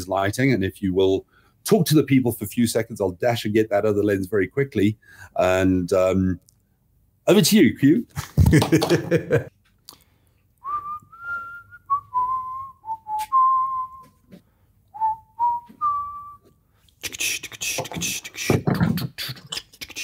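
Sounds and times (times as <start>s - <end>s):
person whistling a tune: 10.6s - 14.2s, 15.0s - 16.5s
rapid mouth noises: 16.9s - 20.0s.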